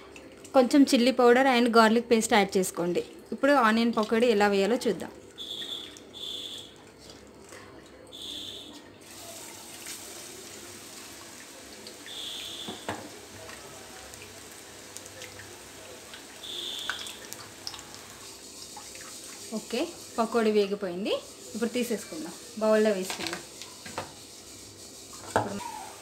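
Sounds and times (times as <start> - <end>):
batter sizzling in hot oil: 5.3 - 6.8, 8.2 - 26.0.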